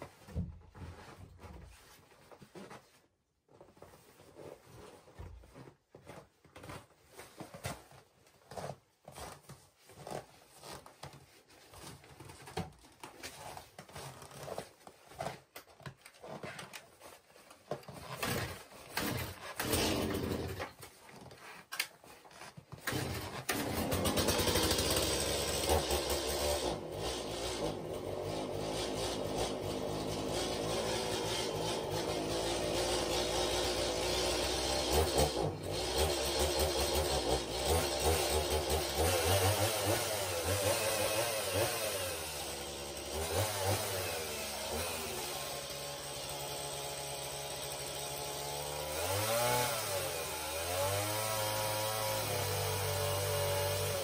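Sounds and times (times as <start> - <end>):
knocks and shuffling of boots: 0.0 - 19.4
chainsaw running: 18.2 - 20.7, 22.8 - 54.0.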